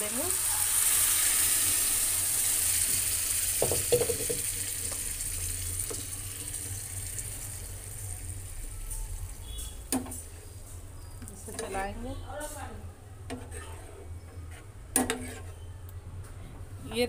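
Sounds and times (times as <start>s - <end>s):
food sizzling in hot oil: 0.0s - 10.3s.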